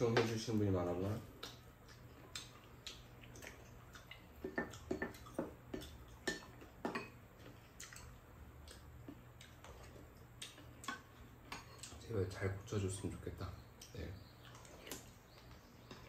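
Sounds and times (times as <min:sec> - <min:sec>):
chewing and lip smacks: 0:01.3 - 0:06.8, 0:07.4 - 0:12.0, 0:13.8 - 0:16.0.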